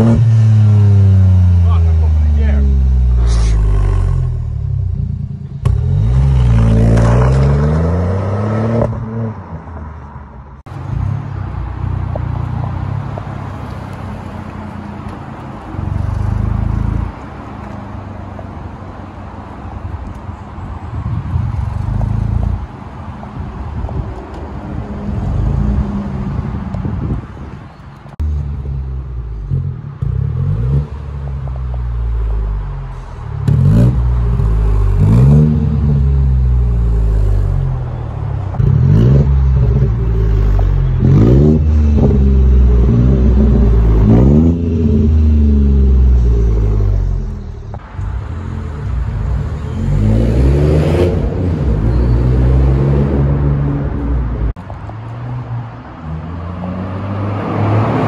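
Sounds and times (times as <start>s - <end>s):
car engine revving through exhaust: 0.0s - 9.3s, 28.2s - 47.8s.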